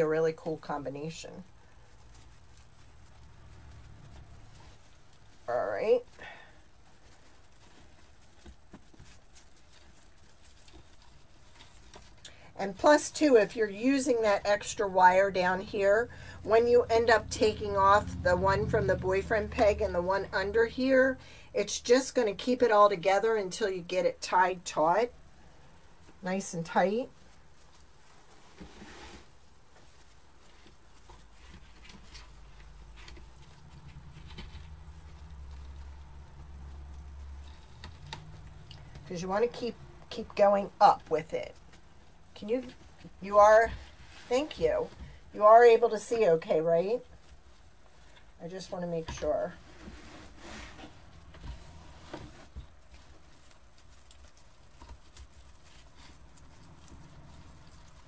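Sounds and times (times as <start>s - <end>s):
low steady hum: 0.0s - 58.0s
ribbon rustling and crinkling: 0.0s - 58.0s.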